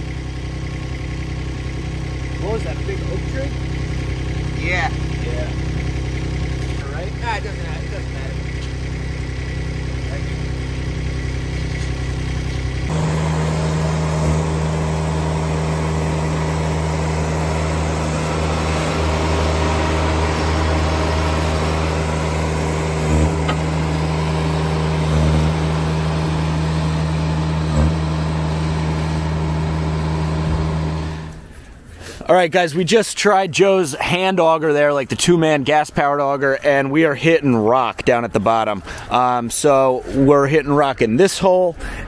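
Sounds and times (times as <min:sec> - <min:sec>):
skid steer engine running: 0:00.0 - 0:31.8.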